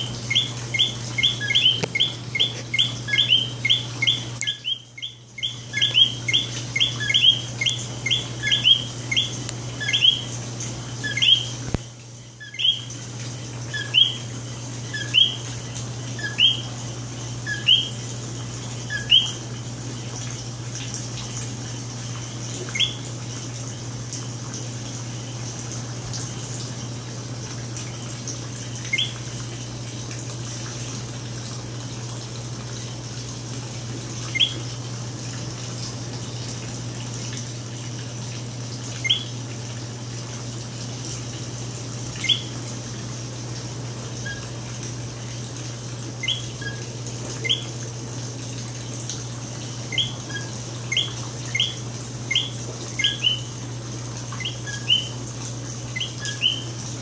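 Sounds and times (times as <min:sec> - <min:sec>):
frogs calling: 0:00.0 - 0:13.0, 0:13.6 - 0:18.1, 0:18.8 - 0:19.5, 0:22.7 - 0:23.1, 0:28.7 - 0:29.3, 0:34.3 - 0:34.6, 0:42.2 - 0:42.6, 0:46.2 - 0:47.8, 0:49.9 - 0:53.6, 0:54.4 - 0:55.3, 0:55.9 - 0:56.8.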